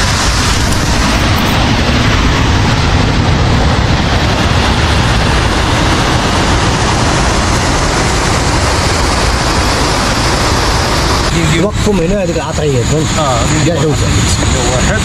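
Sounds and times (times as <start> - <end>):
waterfall and river rushing: 0.0 - 3.2, 4.3 - 11.7.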